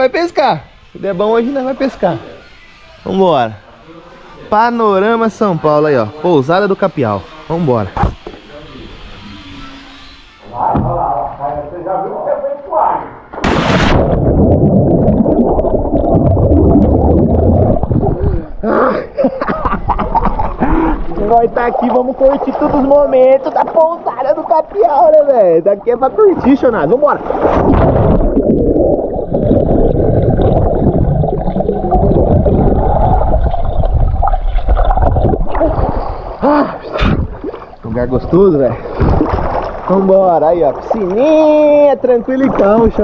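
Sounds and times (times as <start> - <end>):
water splash: 13.3 - 18.1, 26.3 - 41.6
underwater rumbling and gurgling: 13.3 - 18.6, 26.2 - 41.3.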